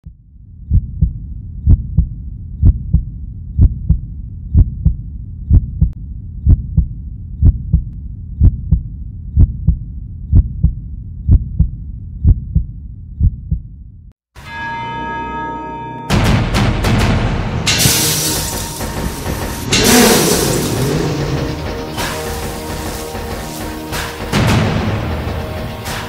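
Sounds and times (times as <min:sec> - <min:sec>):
heartbeat thumps: 0:00.0 - 0:13.8
steady low rumble: 0:00.0 - 0:14.1.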